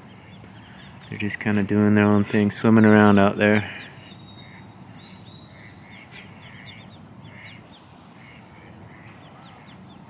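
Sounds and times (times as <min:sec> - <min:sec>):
ducklings peeping: 0:00.0 - 0:10.0
duck quacking: 0:04.0 - 0:09.9.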